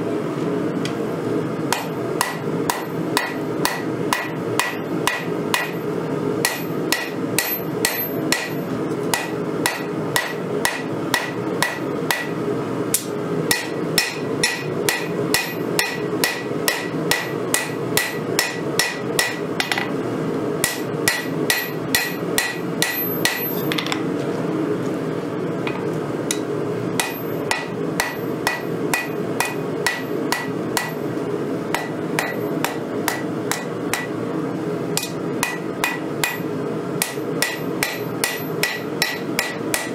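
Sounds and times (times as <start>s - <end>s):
hammer ringing on anvil: 1.7s - 5.8s, 6.4s - 12.4s, 13.5s - 19.9s, 20.6s - 24.0s, 27.0s - 31.0s, 31.7s - 34.2s, 35.0s - 39.9s.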